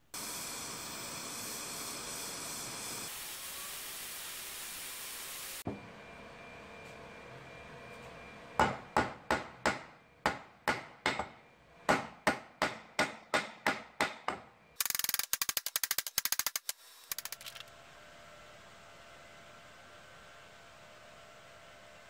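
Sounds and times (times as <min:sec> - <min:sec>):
hammer tapping on a workpiece: 0:08.6 - 0:14.5
rattle of clicks: 0:14.8 - 0:17.7.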